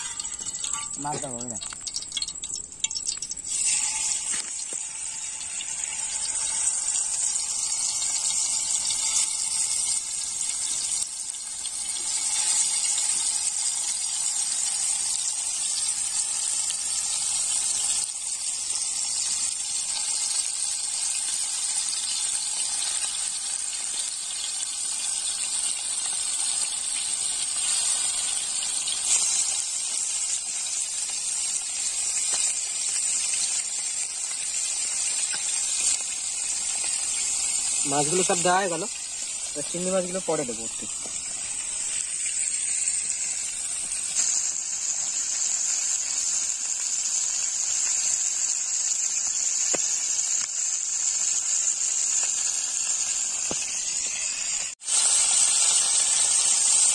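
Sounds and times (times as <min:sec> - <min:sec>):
fish frying in hot oil: 0:00.0 - 0:56.9.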